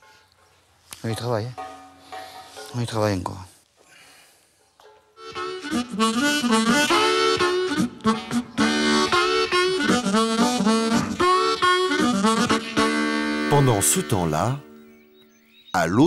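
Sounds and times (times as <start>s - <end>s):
harmonica melody: 5.2s - 15.5s.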